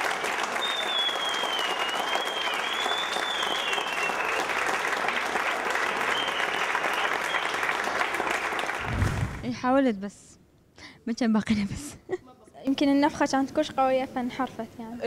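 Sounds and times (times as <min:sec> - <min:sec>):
group clapping: 0:00.0 - 0:09.4.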